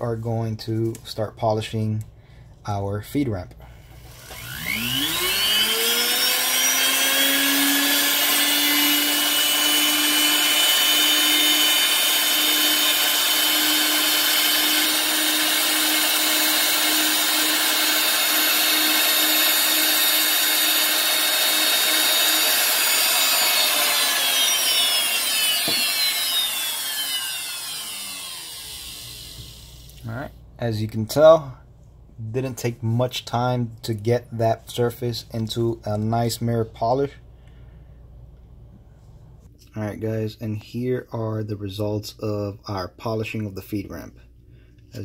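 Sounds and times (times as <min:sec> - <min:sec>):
rotary tool motor whine: 0:04.0 - 0:30.0.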